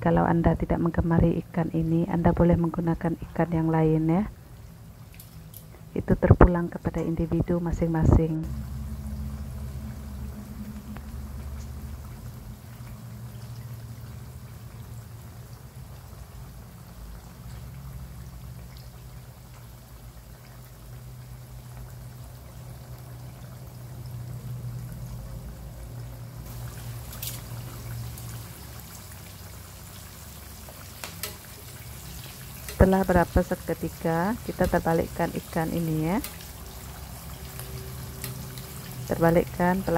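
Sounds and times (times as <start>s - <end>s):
fish sizzling in hot oil: 4.4s - 6.0s, 8.4s - 39.9s
low hum: 5.6s - 17.1s
tongs clicking on pan: 31.0s - 31.8s, 32.5s - 32.9s, 36.2s - 36.5s, 37.6s - 38.8s.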